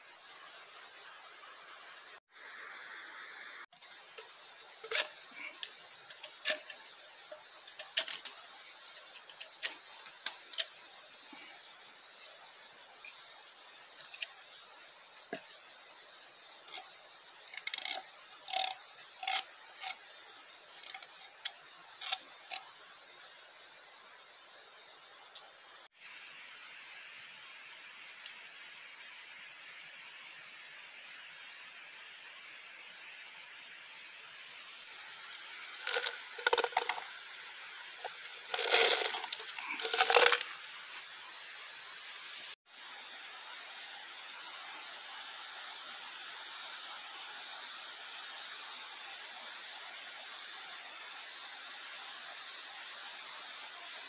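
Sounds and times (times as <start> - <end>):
forest insects hissing: 0.0 - 54.0
beans rattling into metal pan: 35.8 - 37.1, 38.0 - 40.5.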